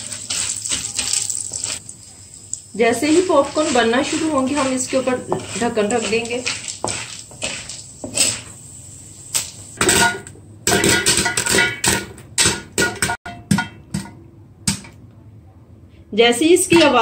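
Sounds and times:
popcorn popping in pan: 0:00.0 - 0:08.6, 0:09.4 - 0:15.0.

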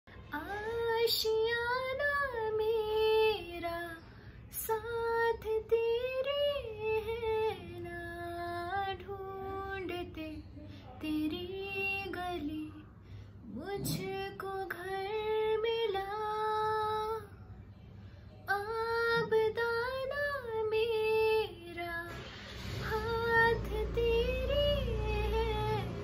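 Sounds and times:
woman singing solo: 0:11.0 - 0:17.2
singer breathing: 0:13.0 - 0:13.5.

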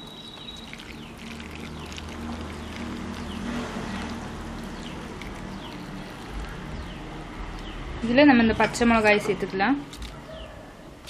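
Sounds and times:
liquid pouring over vegetables: 0:00.0 - 0:06.7.

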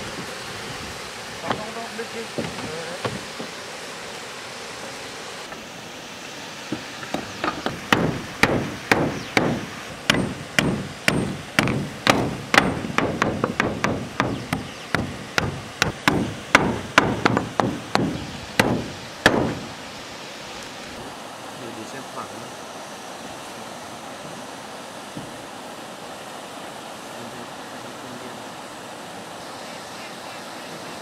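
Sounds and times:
hand tool striking wood: 0:02.4 - 0:03.5, 0:06.8 - 0:19.7.

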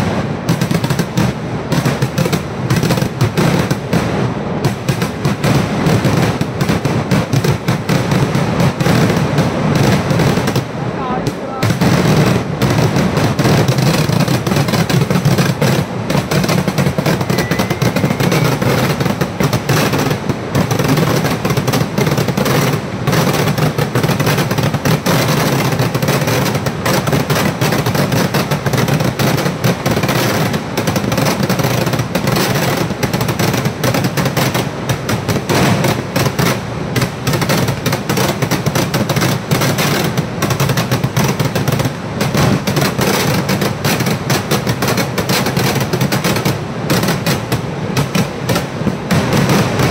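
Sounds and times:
firecracker bangs: 0:00.0 - 0:49.9.

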